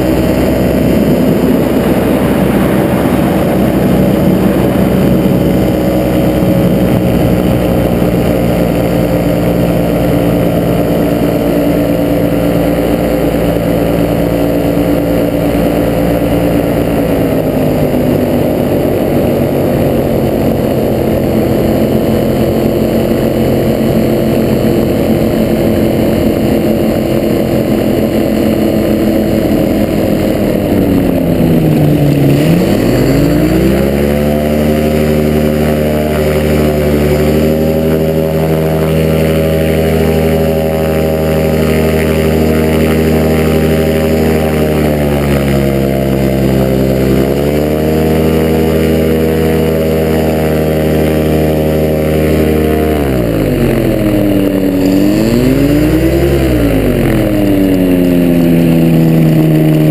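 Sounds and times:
aircraft engine and propeller drone: 0.0 - 59.9.

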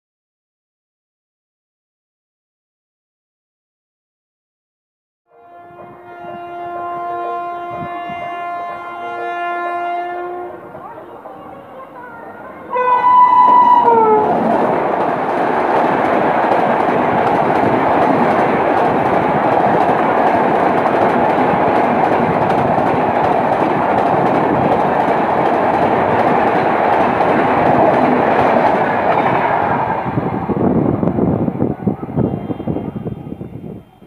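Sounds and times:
locomotive horn blast: 5.3 - 10.7, 12.7 - 14.4, 32.1 - 33.5
train passing on track: 5.3 - 34.0.

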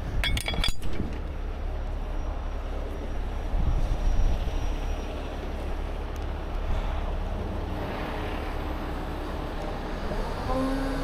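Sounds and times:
metal shackles clinking: 0.1 - 1.2.

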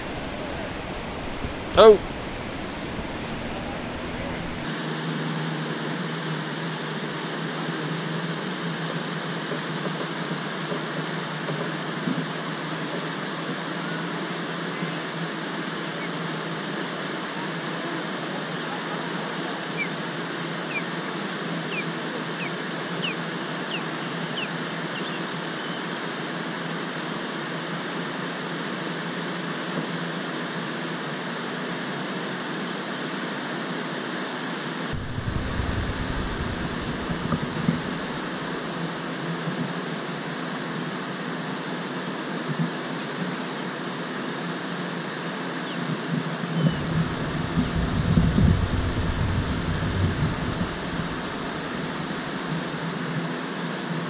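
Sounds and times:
low rumble: 0.0 - 4.7, 34.9 - 38.7, 46.7 - 52.5.

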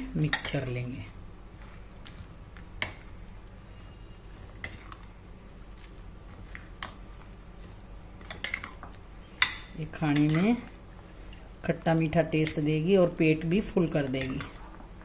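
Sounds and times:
spoon stirring thick mixture: 4.1 - 15.0.

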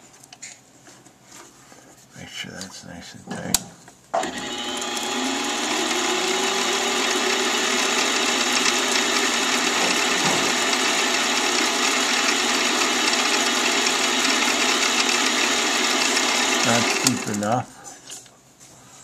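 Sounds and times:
drill cutting into brass: 4.2 - 17.4
lathe motor whine: 4.2 - 17.4.

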